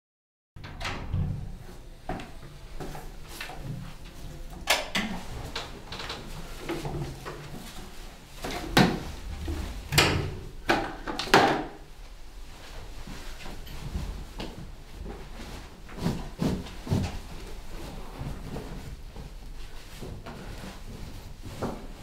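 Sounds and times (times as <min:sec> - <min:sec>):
broom and bucket knocking: 0:05.6 - 0:11.8.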